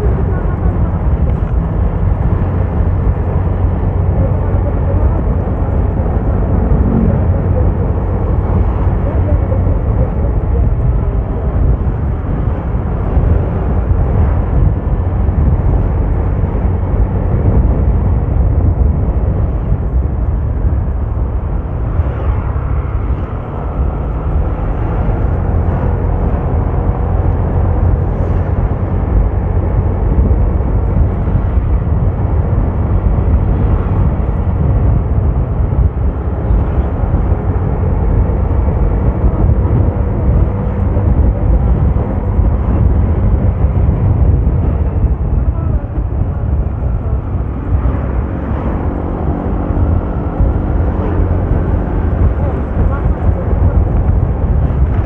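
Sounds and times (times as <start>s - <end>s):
moving vehicle rumble: 0.0s - 55.0s.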